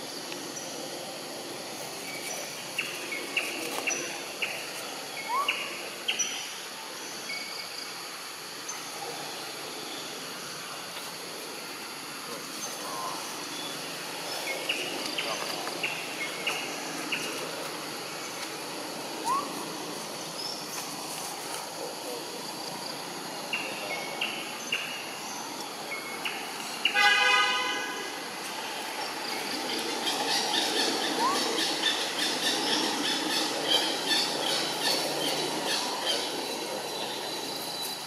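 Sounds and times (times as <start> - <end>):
outdoor background noise: 0.0 - 38.0
vehicle horn toot: 26.9 - 28.0.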